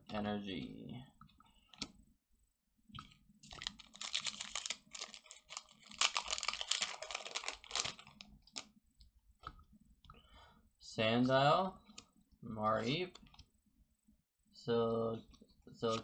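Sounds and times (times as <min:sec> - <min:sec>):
foil wrapper crinkling and tearing: 0:03.5 - 0:08.2.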